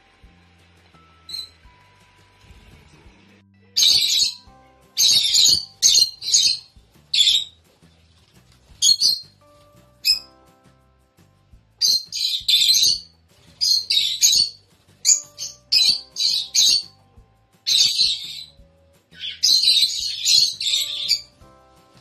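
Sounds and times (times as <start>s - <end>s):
birds giving shrill harsh chirps: 1.2s - 1.7s, 3.8s - 7.6s, 8.7s - 10.4s, 11.8s - 17.0s, 17.6s - 22.0s.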